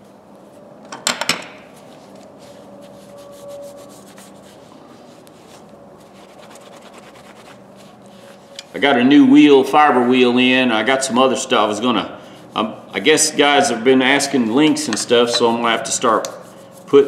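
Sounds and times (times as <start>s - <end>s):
cloth rubbing on pliers: 1.7s - 8.8s.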